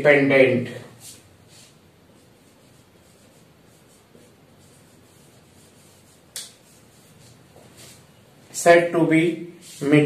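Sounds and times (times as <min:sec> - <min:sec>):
marker pen rubbing on whiteboard: 0:01.0 - 0:08.1, 0:09.6 - 0:10.0.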